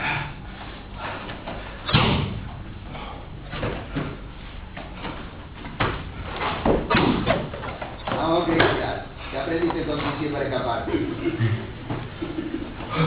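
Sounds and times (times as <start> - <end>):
bodies thudding onto mats: 1.5 - 2.6, 3.4 - 8.9.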